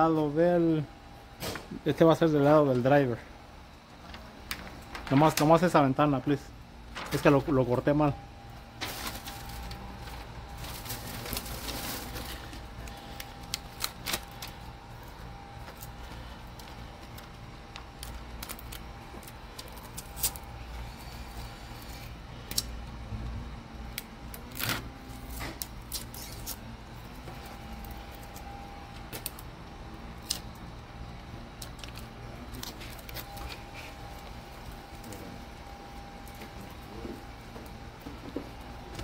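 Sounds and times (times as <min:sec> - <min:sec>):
low shop hum: 0:00.0 - 0:39.0
plastic film crinkling: 0:04.0 - 0:05.8, 0:08.7 - 0:22.8, 0:31.6 - 0:35.3.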